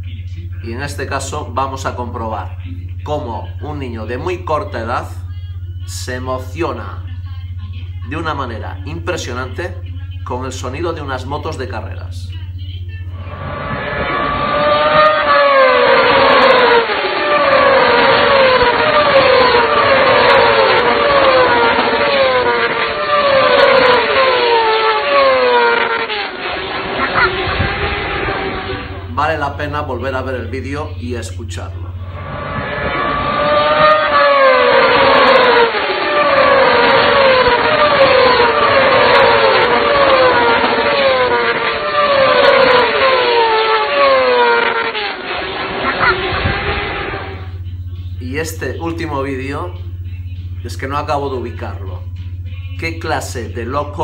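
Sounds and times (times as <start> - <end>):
racing motorcycles passing: 13.2 - 30.6, 31.2 - 47.8.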